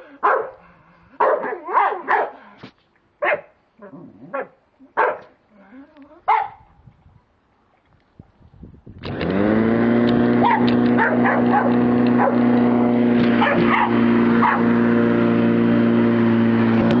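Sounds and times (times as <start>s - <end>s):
dog barking: 0.2s - 0.6s, 1.2s - 2.4s, 3.2s - 3.5s, 4.3s - 5.3s, 6.3s - 6.6s, 10.4s - 12.4s, 13.4s - 14.7s
lawnmower running: 9.0s - 17.0s.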